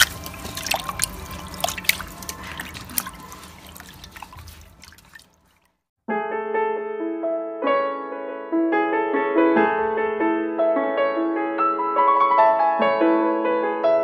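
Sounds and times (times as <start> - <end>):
small water splashes: 0.0 - 5.8
water sloshing in a steel pot: 0.0 - 5.8
piano music: 6.1 - 14.0.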